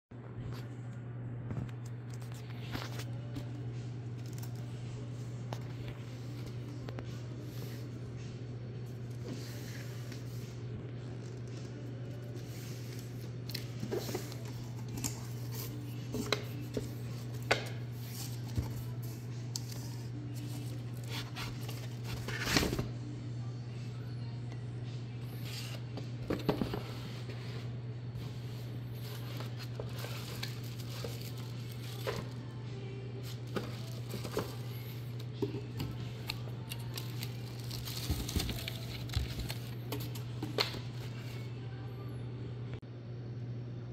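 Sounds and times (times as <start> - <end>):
steady low hum: 0.1 - 43.9
plastic wrap rustling: 29.0 - 32.5, 33.2 - 41.2
cardboard box handling: 33.5 - 34.7, 37.0 - 40.9.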